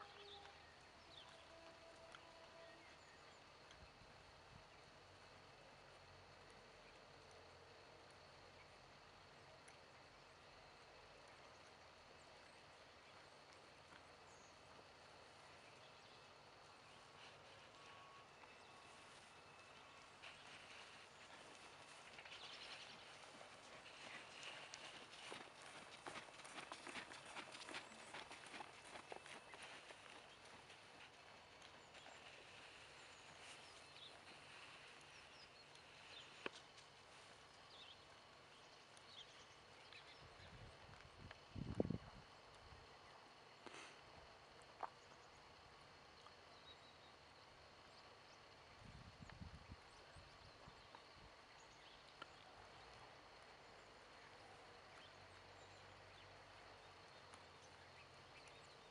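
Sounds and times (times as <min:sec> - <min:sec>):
faint birds chirping: 0:00.0 - 0:58.9
faint outdoor hiss: 0:00.0 - 0:58.9
horse hooves on sand: 0:11.6 - 0:42.7.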